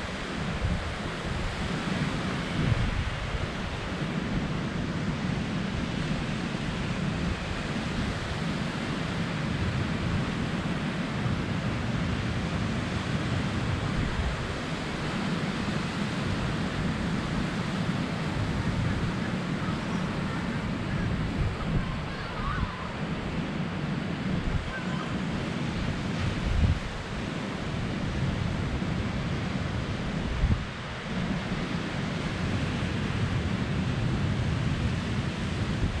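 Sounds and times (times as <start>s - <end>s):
ocean surf breaking on beach: 0.0s - 36.0s
wind rumbling on microphone: 0.0s - 36.0s.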